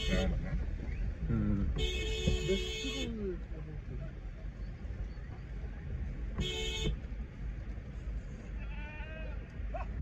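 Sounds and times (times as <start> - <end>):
vehicle horn honk: 0.0 - 0.4, 1.8 - 3.1, 6.4 - 7.0
low rumble inside car: 0.0 - 10.0
goat bleating: 8.6 - 9.4.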